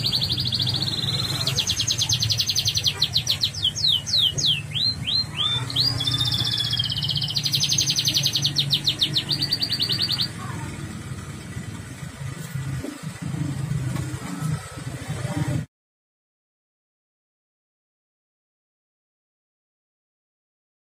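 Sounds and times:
canary singing trills: 0:00.0 - 0:10.8.

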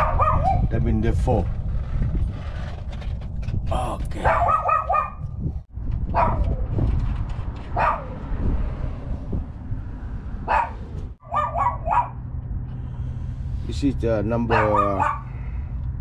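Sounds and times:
dog barking: 0:00.0 - 0:00.7, 0:04.2 - 0:05.2, 0:06.1 - 0:06.5, 0:07.8 - 0:08.2, 0:10.5 - 0:12.2, 0:14.4 - 0:15.3
low background rumble: 0:08.2 - 0:16.0.

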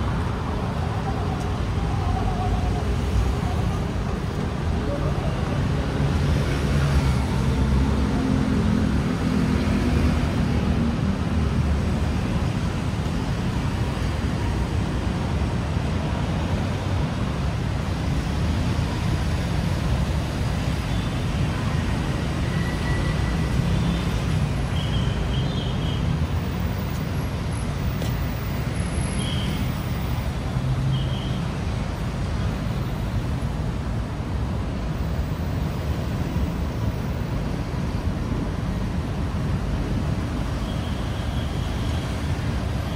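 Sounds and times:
city road traffic rumble: 0:00.0 - 0:42.9.

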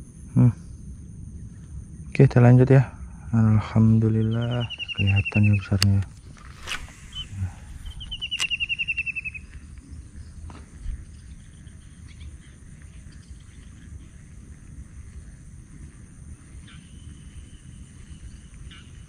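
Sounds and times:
sharp click: 0:04.8 - 0:07.2, 0:08.0 - 0:08.9
fishing reel spool whirring: 0:06.1 - 0:09.5.

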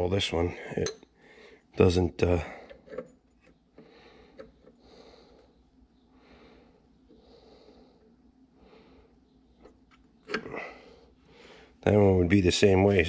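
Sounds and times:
faint breathing: 0:00.5 - 0:01.8, 0:03.8 - 0:09.5, 0:10.3 - 0:11.8.

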